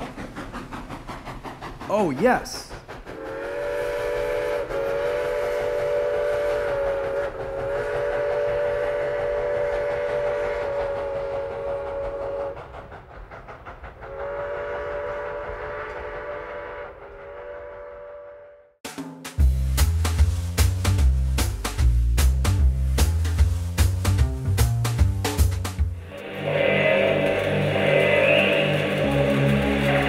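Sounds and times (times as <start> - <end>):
train whistle blasts: 3.2 - 12.6, 14.1 - 18.7, 26.2 - 30.0.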